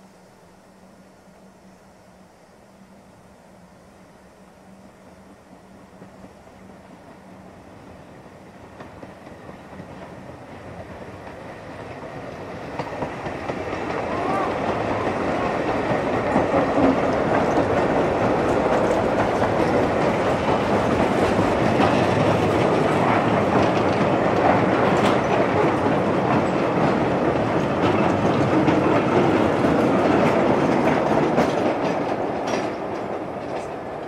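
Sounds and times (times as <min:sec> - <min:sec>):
wagon wheels clattering on rails: 0:08.8 - 0:34.0.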